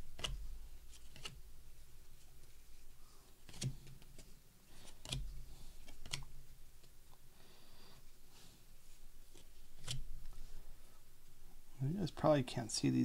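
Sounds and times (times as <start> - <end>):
cards tapping and snapping: 0.1 - 1.4, 3.5 - 4.2, 4.8 - 6.3
cards being flipped through: 0.2 - 1.4, 3.4 - 6.4, 9.2 - 10.5.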